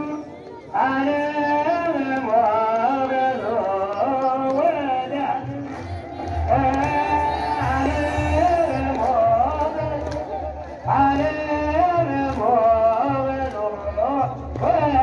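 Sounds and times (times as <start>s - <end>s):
person singing a hymn: 0.0s - 15.0s
steady low beat: 5.5s - 13.0s.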